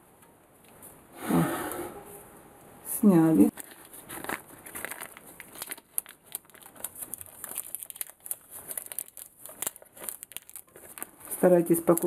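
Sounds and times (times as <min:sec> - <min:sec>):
parchment paper crinkling: 0:03.5 - 0:12.0.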